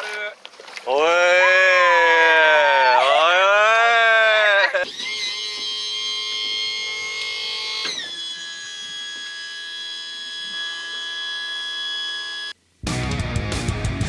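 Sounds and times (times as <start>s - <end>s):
outboard motor whining: 4.4s - 12.6s.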